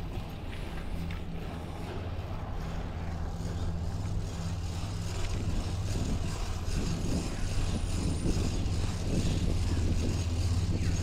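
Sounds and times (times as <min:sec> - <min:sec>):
street traffic engine hum: 0:00.0 - 0:11.0.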